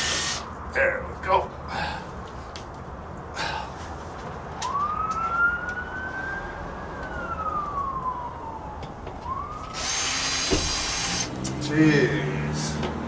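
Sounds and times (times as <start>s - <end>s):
emergency siren wailing: 4.5s - 13.0s.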